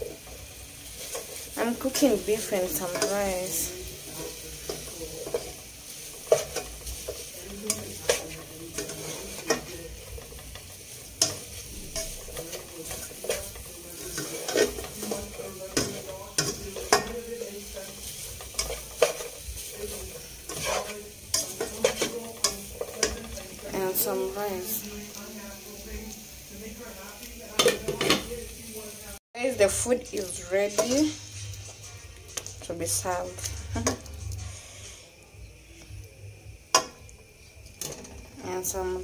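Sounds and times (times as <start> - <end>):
spatula scraping and knocking pan: 0.0 - 24.8, 29.6 - 35.0
beef sizzling in a pan: 0.0 - 39.0.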